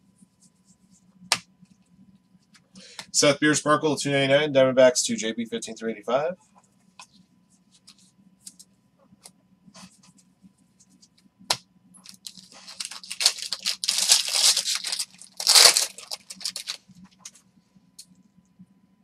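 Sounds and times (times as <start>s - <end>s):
wrapper tearing and crinkling: 12.0s - 16.8s.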